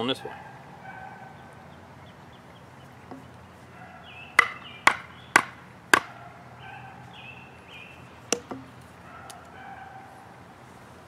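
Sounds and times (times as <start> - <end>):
wooden baton knocking on knife: 3.1 - 3.3, 4.4 - 6.1, 8.3 - 8.8.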